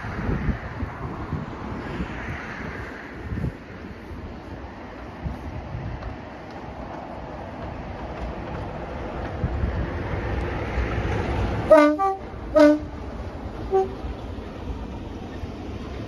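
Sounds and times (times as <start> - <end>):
train rumbling: 0.0 - 16.0
two-tone locomotive horn: 11.7 - 13.0, 13.7 - 14.1.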